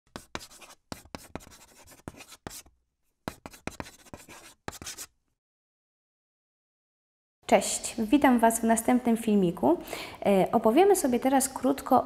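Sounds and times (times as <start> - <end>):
chalk scratching on blackboard: 0.1 - 5.2.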